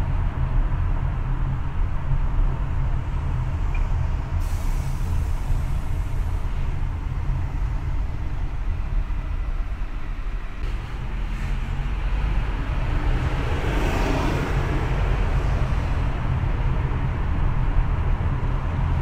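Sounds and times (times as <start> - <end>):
car road and engine rumble: 0.0 - 19.0
hiss: 4.4 - 6.6.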